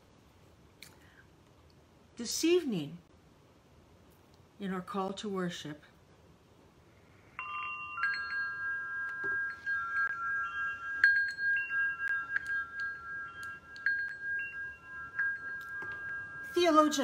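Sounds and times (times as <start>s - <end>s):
wind chimes ringing: 7.4s - 17.0s.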